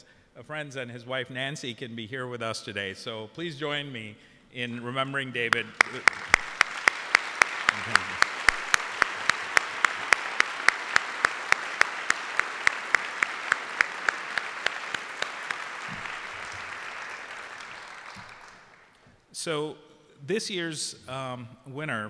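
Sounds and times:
audience applauding: 0:05.5 - 0:19.0
loud close hand claps: 0:05.5 - 0:19.0.

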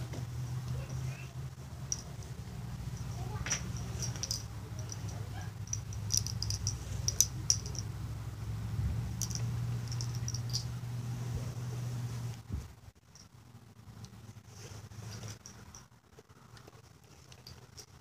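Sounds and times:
steady low hum: 0:00.0 - 0:18.0
small clicks and crackles: 0:15.1 - 0:18.0.

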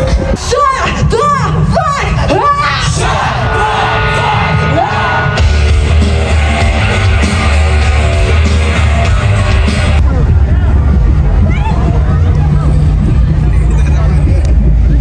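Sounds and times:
music with singing: 0:00.0 - 0:10.0
heavy bass: 0:00.0 - 0:15.0.

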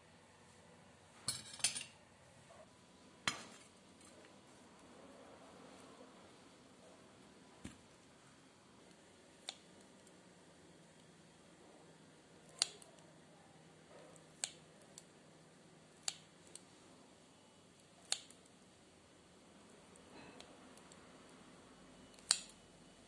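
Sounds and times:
scissors snipping: 0:12.5 - 0:13.0, 0:22.1 - 0:22.6.

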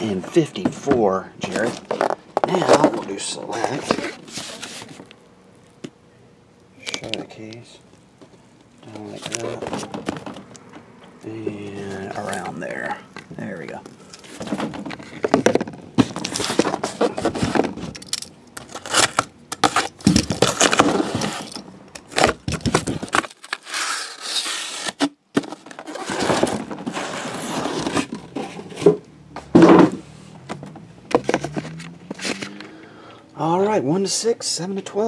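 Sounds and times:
cardboard boxes scraping: 0:01.5 - 0:05.0, 0:16.0 - 0:17.8, 0:18.7 - 0:29.0.

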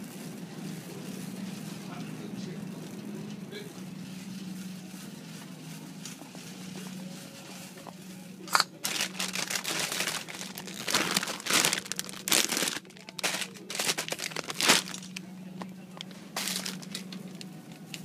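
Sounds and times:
steady low hum: 0:00.0 - 0:18.0
plastic crinkling: 0:08.5 - 0:15.2, 0:16.0 - 0:17.5.

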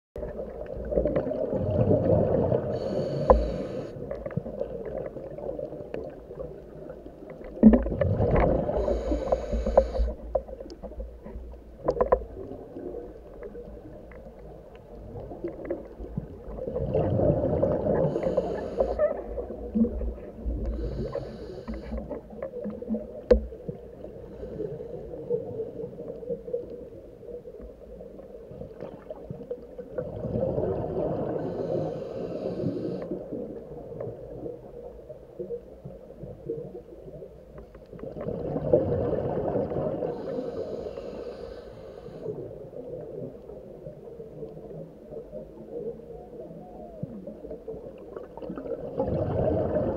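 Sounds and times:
low bubbling: 0:00.2 - 0:21.2, 0:46.2 - 0:49.9
exhaled bubbles rushing underwater: 0:00.2 - 0:37.3, 0:37.9 - 0:41.2, 0:42.1 - 0:49.9.

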